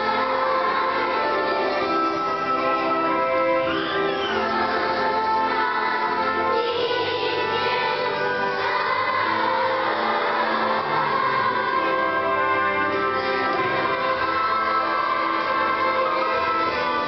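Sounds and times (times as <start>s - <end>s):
children's choir singing: 0.0s - 17.0s.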